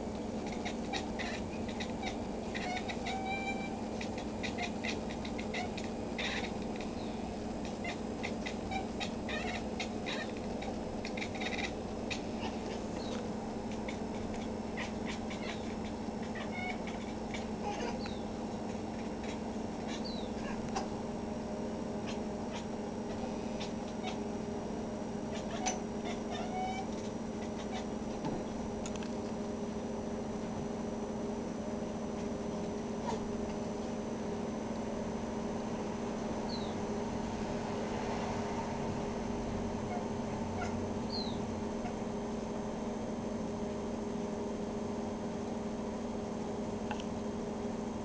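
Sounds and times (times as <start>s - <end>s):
steady low hum: 0.0s - 48.0s
cat chattering and chirping: 0.2s - 21.0s, 22.0s - 24.3s, 25.2s - 28.0s, 36.4s - 36.8s, 39.9s - 42.1s
cat meowing: 0.4s - 13.2s, 13.8s - 18.2s, 19.2s - 20.7s, 23.6s - 24.2s, 25.3s - 27.9s, 39.9s - 42.0s.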